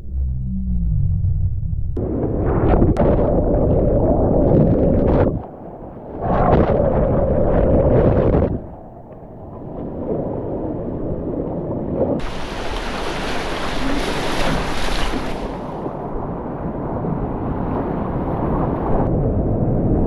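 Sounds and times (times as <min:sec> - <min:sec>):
wind buffeting microphone: 0:02.0 - 0:20.0
whitewater rapids rushing: 0:12.2 - 0:15.8.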